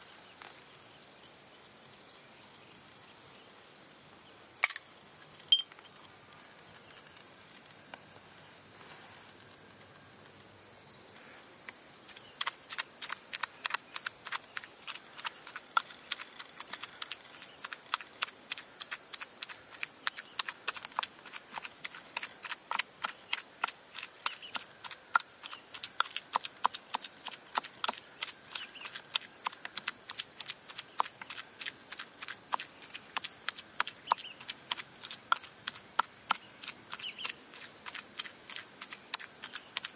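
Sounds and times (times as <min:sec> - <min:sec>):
insects chirping faintly: 0:00.0 - 0:39.9
pestle pounding in mortar: 0:12.4 - 0:39.9.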